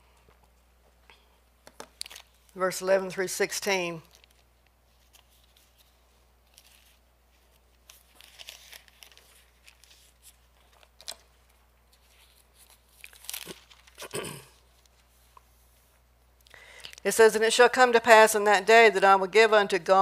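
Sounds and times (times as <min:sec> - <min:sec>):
thin pages rustling: 0:01.7 - 0:02.6, 0:04.0 - 0:16.0.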